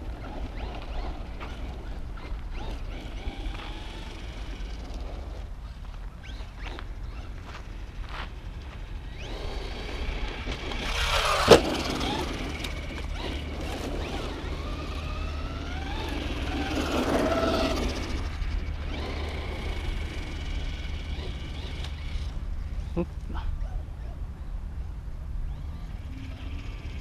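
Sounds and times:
electric motor whining: 0.0 - 5.5, 8.6 - 22.9, 25.5 - 27.0.

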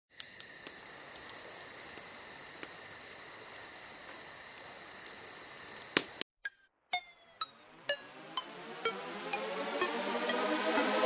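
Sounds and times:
campfire crackles: 0.1 - 6.2
night insects trilling: 0.1 - 6.2.

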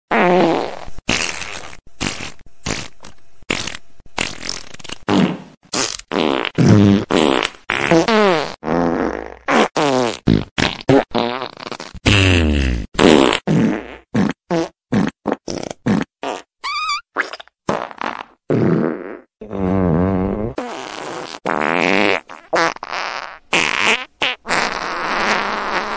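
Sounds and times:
fart sounds: 0.1 - 25.9.

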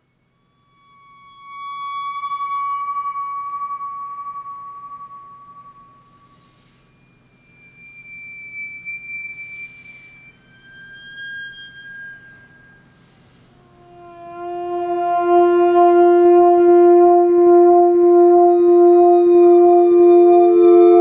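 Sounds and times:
theremin high notes: 13.6 - 21.0.

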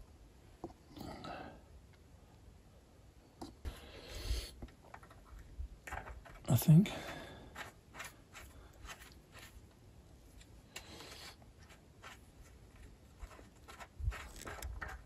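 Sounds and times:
light clicks and rubbing: 10.3 - 15.0.

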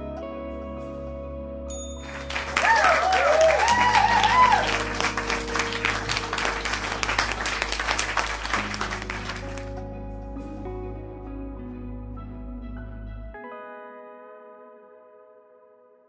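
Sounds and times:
soft background music: 0.0 - 16.0
crowd applause: 2.0 - 9.7
cheering whoops: 2.1 - 9.5.

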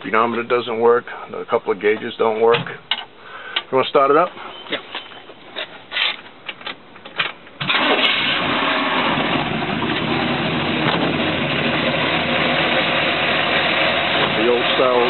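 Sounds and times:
car engine starting and running: 7.6 - 15.0.

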